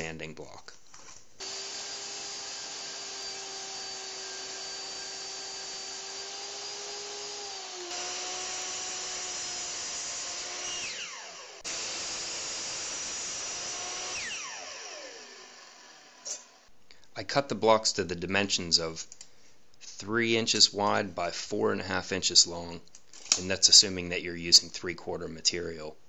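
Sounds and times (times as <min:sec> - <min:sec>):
miter saw winding down: 0:01.4 - 0:16.2
table saw cutting wood: 0:01.4 - 0:16.7.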